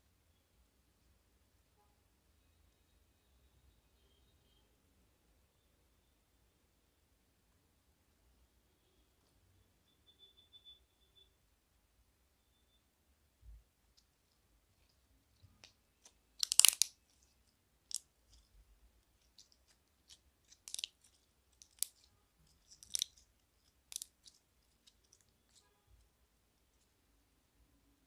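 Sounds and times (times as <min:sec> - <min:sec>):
slime crackling and popping: 0:15.4 - 0:25.7.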